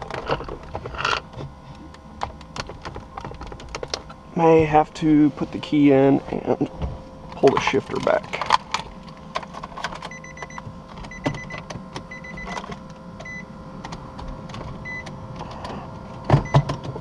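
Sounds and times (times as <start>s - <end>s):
car warning chime beeping: 10.1s - 12.6s, 13.2s - 13.5s, 14.8s - 15.1s.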